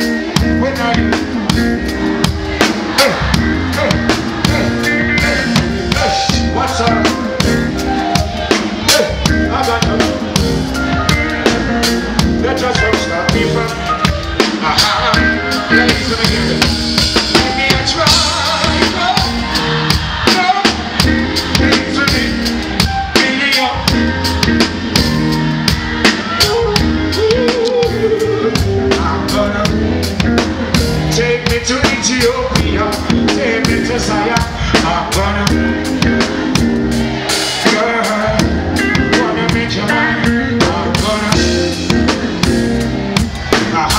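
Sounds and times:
drum kit beat: 0.0s - 43.9s
live reggae band: 0.0s - 43.9s.

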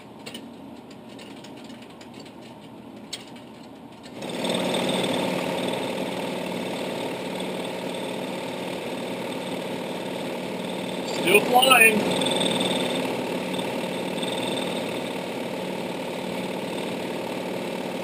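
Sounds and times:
cockpit background noise: 11.0s - 13.0s.

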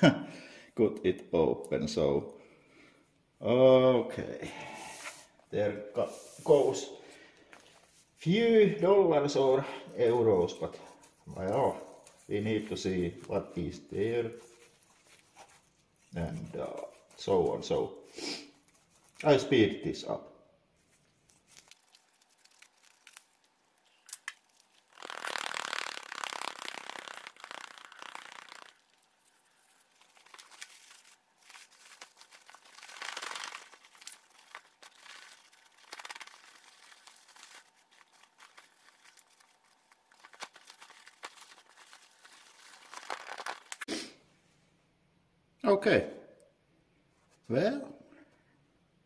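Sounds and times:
bag rustling and crinkling: 20.8s - 43.9s.

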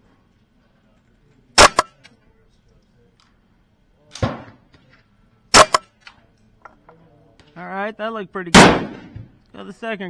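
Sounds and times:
rifle shot with echo: 1.6s - 2.0s, 5.5s - 5.8s, 8.6s - 9.2s
dull bang: 8.6s - 9.2s.

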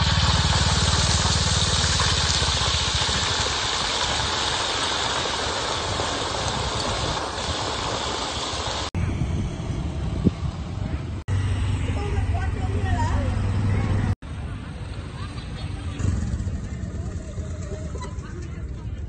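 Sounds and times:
oil sizzling and bubbling: 0.0s - 9.0s
low rumble: 9.0s - 19.0s.

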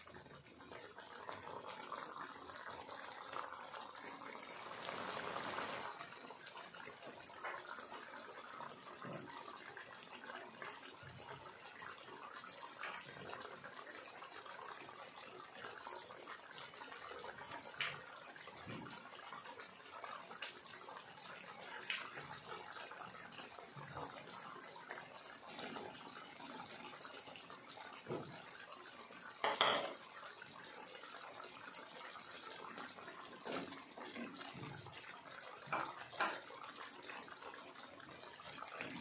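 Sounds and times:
curry bubbling in a pan: 0.0s - 39.0s.

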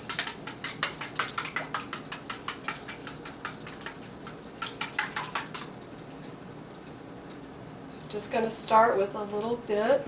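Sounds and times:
whisk clicking against bowl: 0.0s - 5.7s.

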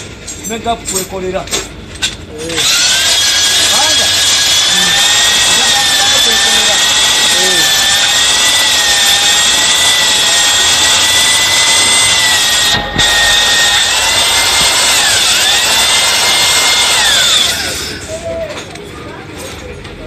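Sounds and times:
electric drill honing whine: 2.6s - 18.1s.

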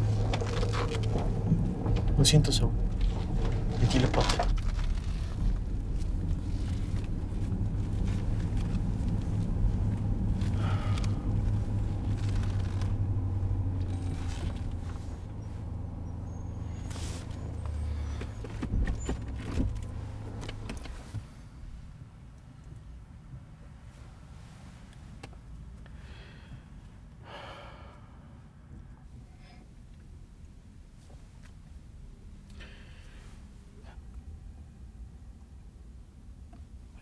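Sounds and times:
car engine drone: 0.0s - 23.8s, 24.4s - 37.0s
road noise: 0.0s - 37.0s.

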